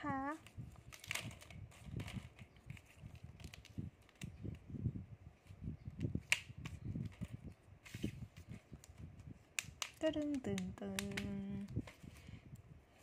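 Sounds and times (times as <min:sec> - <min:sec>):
sharp plastic clicks: 0:09.5 - 0:11.8.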